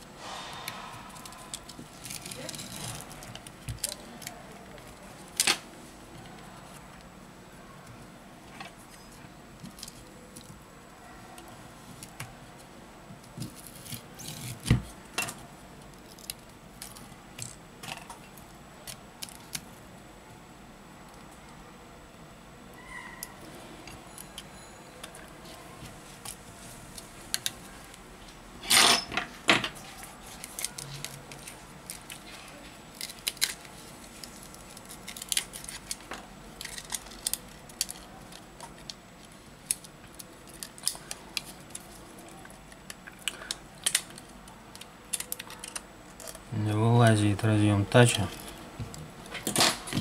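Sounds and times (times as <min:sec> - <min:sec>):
plastic cracking: 0:30.3 - 0:46.5.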